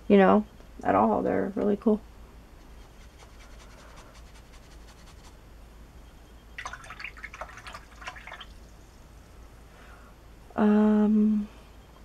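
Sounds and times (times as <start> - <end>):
faint brush strokes on paper: 2.6 - 5.4
brush rinsed in cup of water: 6.6 - 8.8.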